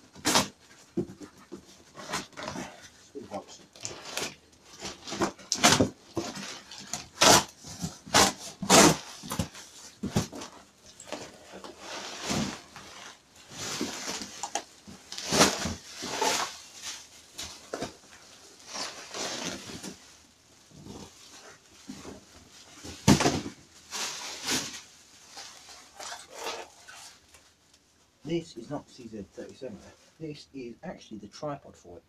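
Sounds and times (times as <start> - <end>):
cardboard ripping: 0.2 - 20.0, 25.4 - 27.2
plastic crinkling: 0.2 - 27.8.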